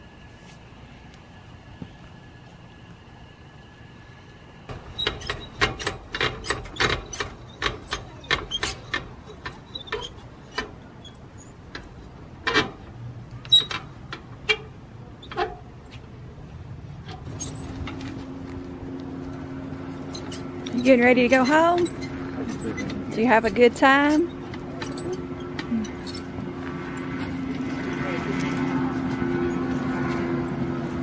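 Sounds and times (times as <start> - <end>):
steady low hum: 0.0 - 31.0
crank handle clinking and rattling: 4.7 - 12.8, 17.1 - 18.2, 19.9 - 28.1.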